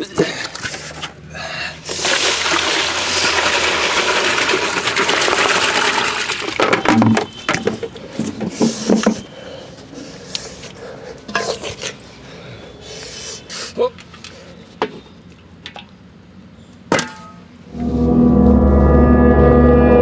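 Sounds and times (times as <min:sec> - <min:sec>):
water pouring into plastic tub: 0:01.9 - 0:06.6.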